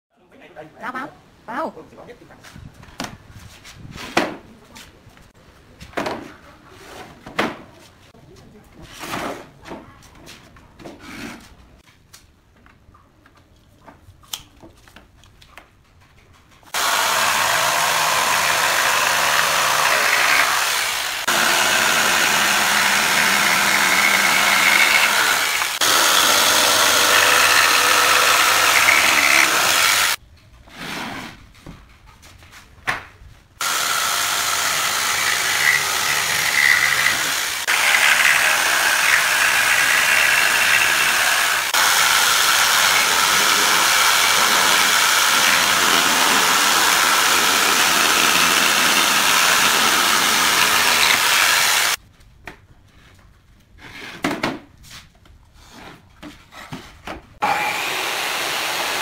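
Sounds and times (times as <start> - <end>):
jigsaw cutting wood: 16.7 - 30.2, 33.6 - 52.0, 57.4 - 59.0.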